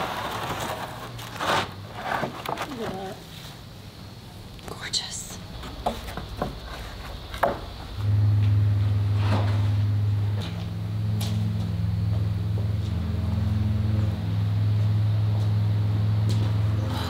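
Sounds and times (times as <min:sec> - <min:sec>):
utility vehicle engine idling: 0:05.5 - 0:17.0
wooden boards knocking: 0:05.6 - 0:07.8.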